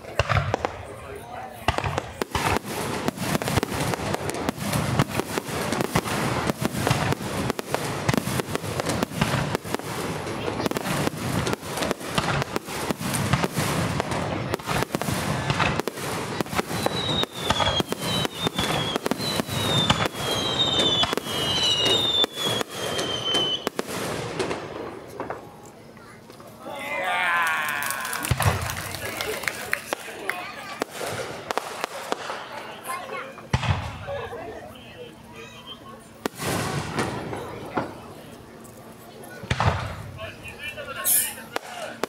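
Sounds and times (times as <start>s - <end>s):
fireworks bangs and crackling: 0.0s - 26.2s, 27.7s - 42.0s
high falling firework whistles: 16.5s - 23.8s.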